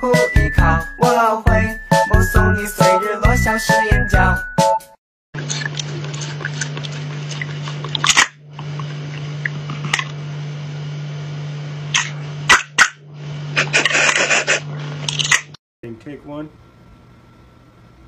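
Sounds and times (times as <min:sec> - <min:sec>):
wet clicks and rustles: 0:05.4 - 0:10.2.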